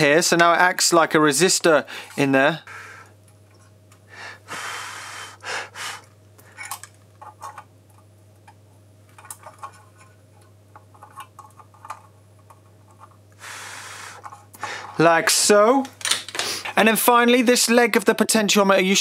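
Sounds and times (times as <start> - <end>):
steady low hum: 0.0 - 19.0
breath-like hiss: 4.1 - 6.1, 13.4 - 14.2.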